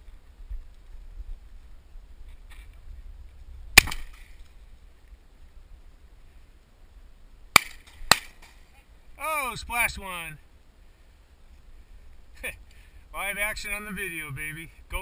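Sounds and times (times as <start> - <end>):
shotgun shots: 3.8 - 4.2, 7.6 - 8.5.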